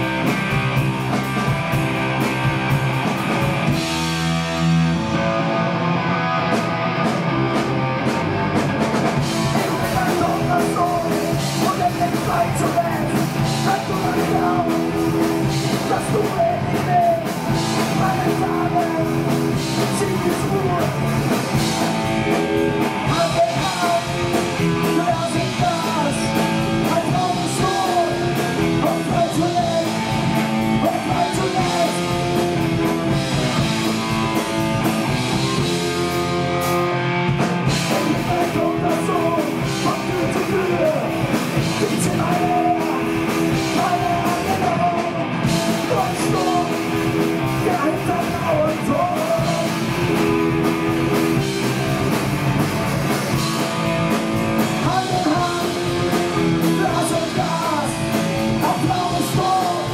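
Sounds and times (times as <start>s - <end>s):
distorted electric guitars: 0.0s - 59.9s
driving drum kit: 0.0s - 59.9s.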